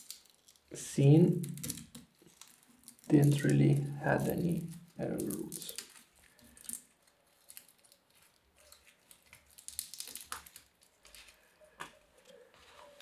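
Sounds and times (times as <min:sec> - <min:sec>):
dry pieces snapping: 0:00.0 - 0:12.0
rustling of dry plant debris: 0:01.4 - 0:11.6.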